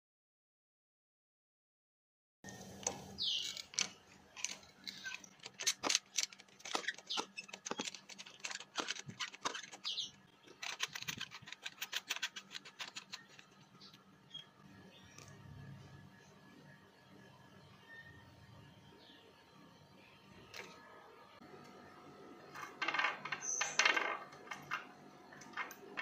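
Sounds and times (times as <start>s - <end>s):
short squeaks: 4.8s - 14.5s.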